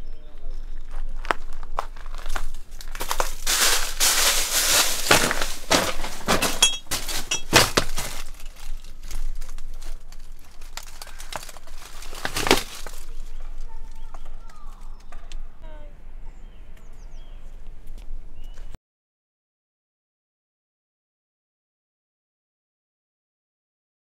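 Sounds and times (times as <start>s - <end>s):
footsteps crunching through dry leaves: 0.4s - 15.0s.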